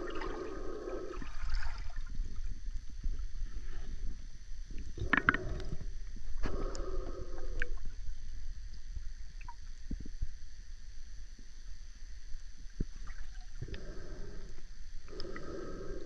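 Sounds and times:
diver breathing: 0:00.0 - 0:01.6, 0:05.0 - 0:07.9, 0:13.6 - 0:16.0
muffled underwater rumble: 0:00.0 - 0:16.0
faint clicks and knocks: 0:04.7 - 0:06.8.

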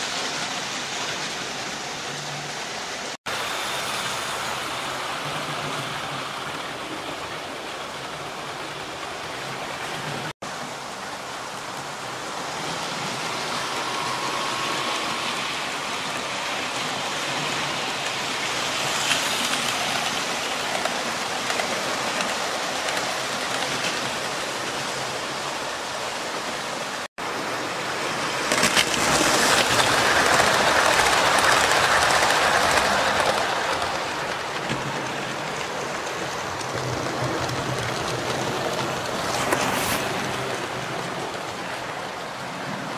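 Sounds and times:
model train wheels rattling on track: 0:28.4 - 0:42.8.

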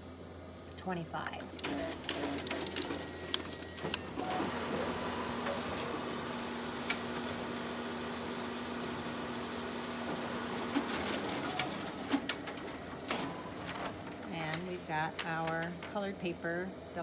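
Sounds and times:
copier mechanical whir: 0:00.1 - 0:17.0
copier clicks: 0:01.4 - 0:07.7, 0:09.9 - 0:15.9.

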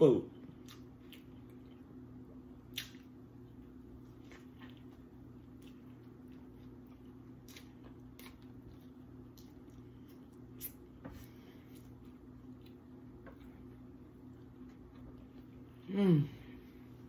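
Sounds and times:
person chewing: 0:00.4 - 0:15.9.

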